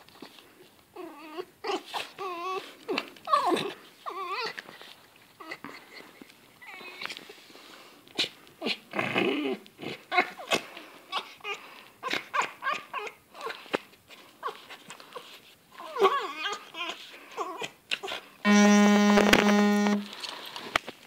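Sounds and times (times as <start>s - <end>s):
fox whining and chattering: 8.2s - 13.7s.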